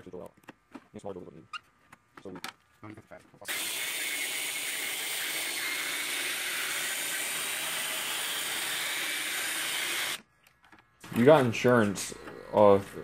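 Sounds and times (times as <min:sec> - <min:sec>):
cordless drill boring metal: 0:03.5 - 0:10.2.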